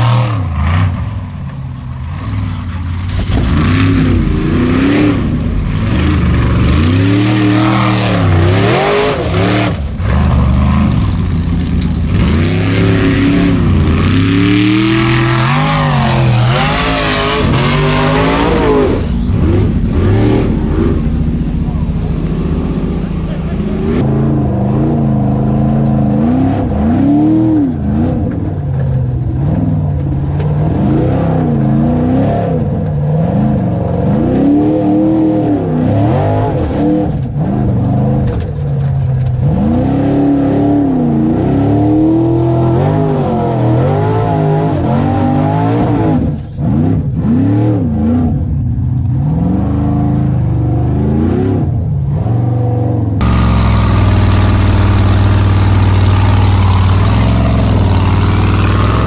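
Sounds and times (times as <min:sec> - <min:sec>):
buggy engine revving: 0:00.0 - 0:59.0.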